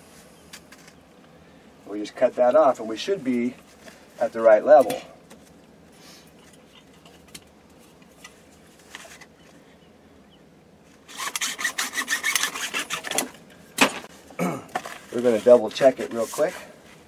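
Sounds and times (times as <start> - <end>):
hacksaw cutting plastic pipe: 11.1 - 13.3.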